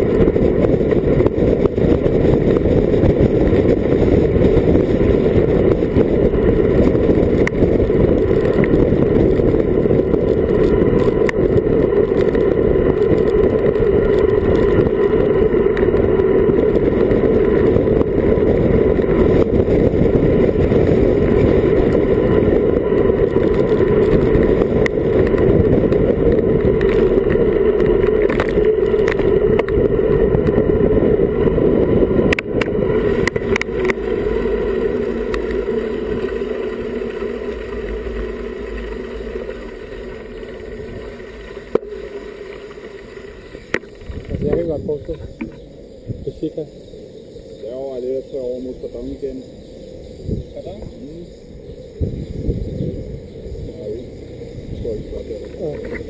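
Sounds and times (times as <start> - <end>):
tyre noise on asphalt: 0.0 - 56.0
wind roar on microphone: 0.0 - 56.0.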